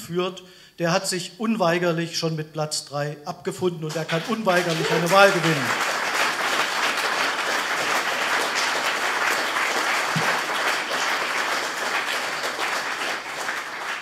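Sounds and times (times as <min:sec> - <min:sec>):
audience applauding: 0:03.9 - 0:14.0.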